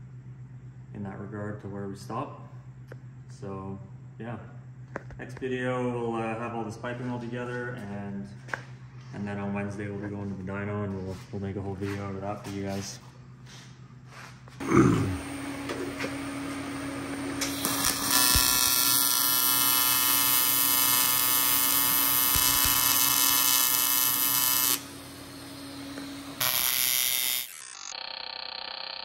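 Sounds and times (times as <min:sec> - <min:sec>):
welding arc buzzing: 0:14.6 - 0:29.0.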